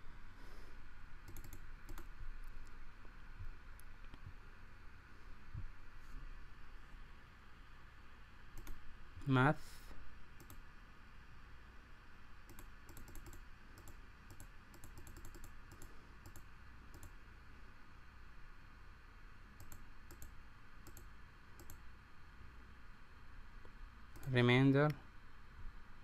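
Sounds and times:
low steady hum: 0:00.0 - 0:26.0
faint computer clicks: 0:01.2 - 0:02.7, 0:08.5 - 0:08.8, 0:10.4 - 0:10.6, 0:12.4 - 0:17.2, 0:19.6 - 0:21.8, 0:23.6 - 0:25.0.

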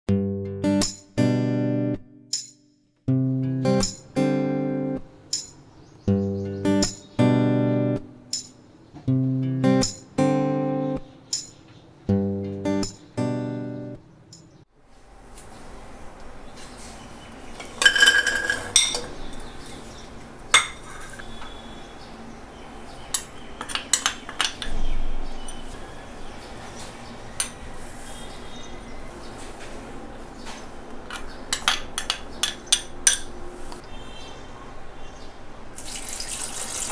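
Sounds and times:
acoustic guitar music: 0:00.1 - 0:14.6
spoon and bowls clinking on pan: 0:17.6 - 0:19.5, 0:20.5 - 0:21.6, 0:23.1 - 0:24.9, 0:27.4 - 0:27.7, 0:31.1 - 0:33.4.

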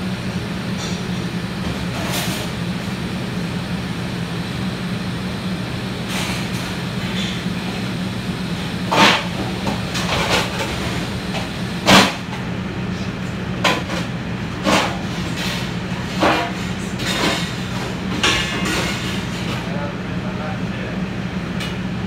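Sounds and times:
exhaust hood fan humming: 0:00.0 - 0:22.0
scrapes and knocks on griddle: 0:08.9 - 0:10.8, 0:13.7 - 0:19.7.

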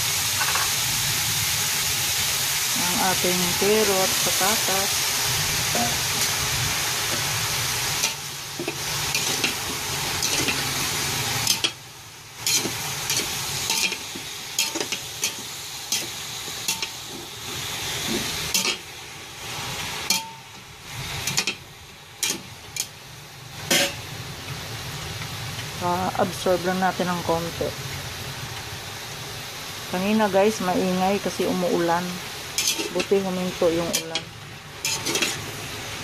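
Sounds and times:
food sizzling: 0:00.0 - 0:36.0
metal spoon scraping pot: 0:32.6 - 0:33.1, 0:34.8 - 0:35.4.

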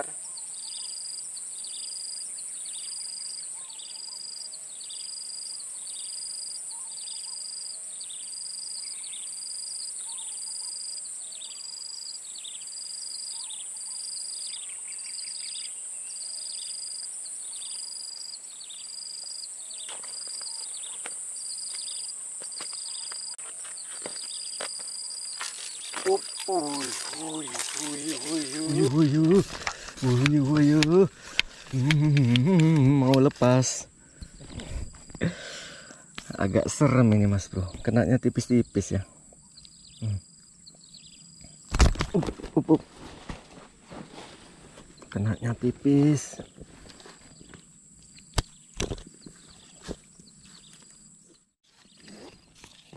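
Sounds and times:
high-pitched insect drone: 0:00.0 - 0:41.6.

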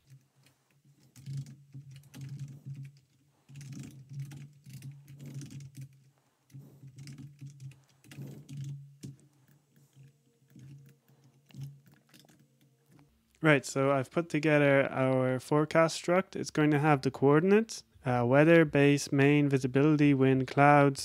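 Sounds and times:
typing on computer keyboard: 0:00.0 - 0:13.0.

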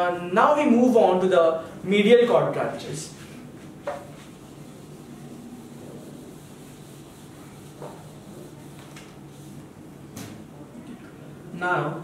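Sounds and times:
eraser rubbing on whiteboard: 0:03.1 - 0:09.7.

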